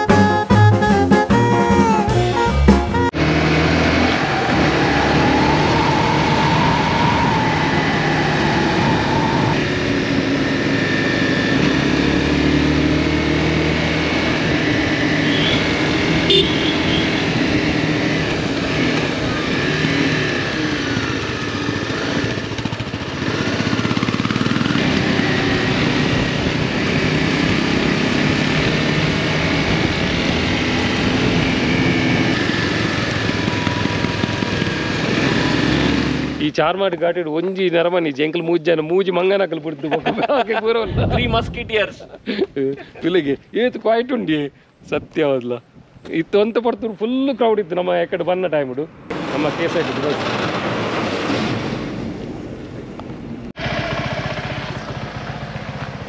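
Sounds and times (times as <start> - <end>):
motorcycle engine revving: 0.0 - 36.6, 49.1 - 52.5, 53.5 - 56.0
steady rush of noise: 40.7 - 42.6.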